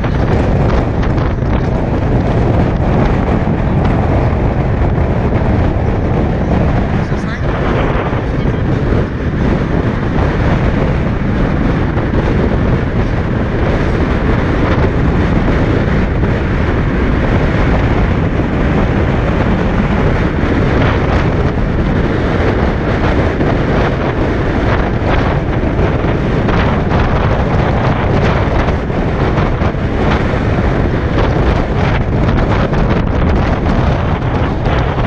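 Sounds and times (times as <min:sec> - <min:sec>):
road noise: 0:00.0 - 0:35.0
wind buffeting microphone: 0:00.0 - 0:35.0.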